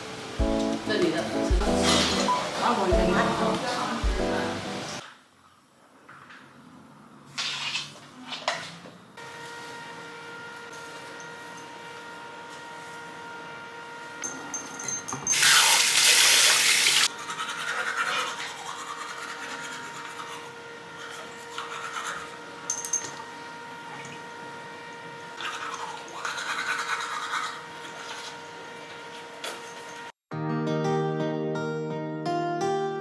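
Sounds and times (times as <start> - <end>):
toothbrush scrubbing teeth: 16.8 - 22.3, 25.4 - 28.4.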